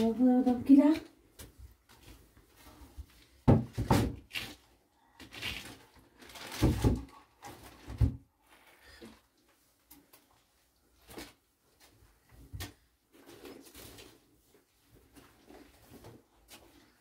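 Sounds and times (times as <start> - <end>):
knocks and thuds of objects: 3.4 - 4.3, 6.5 - 7.2.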